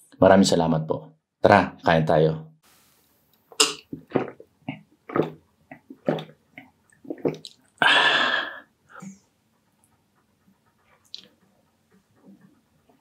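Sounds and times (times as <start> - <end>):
wet squelching chewing: 3.6 - 7.8, 10.7 - 12.9
loud wet mouth sound: 3.6 - 9.2.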